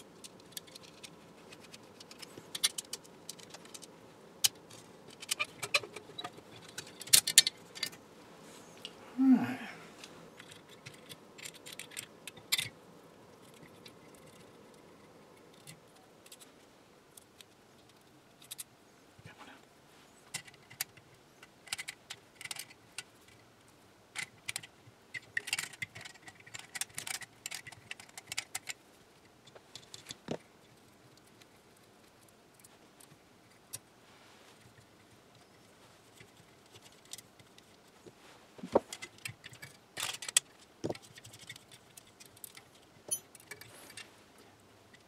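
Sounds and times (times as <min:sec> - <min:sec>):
small metal parts clicking: 0:00.0 - 0:08.0, 0:10.4 - 0:12.8, 0:13.4 - 0:16.5, 0:17.1 - 0:18.7, 0:20.3 - 0:23.4, 0:24.2 - 0:33.8, 0:38.9 - 0:44.1.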